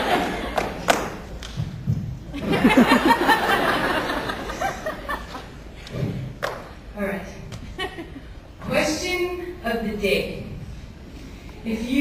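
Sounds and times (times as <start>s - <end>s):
audience laughter: 0.0s - 0.9s, 2.3s - 5.6s.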